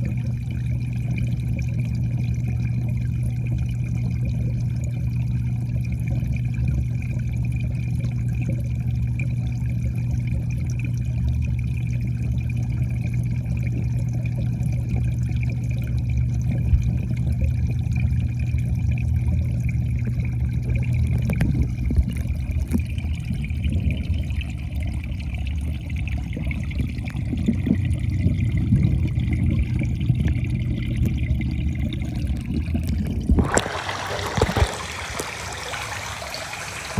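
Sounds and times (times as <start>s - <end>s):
low underwater hum: 0.0s - 36.9s
soft water movement: 0.0s - 36.9s
water splashing: 25.6s - 36.9s.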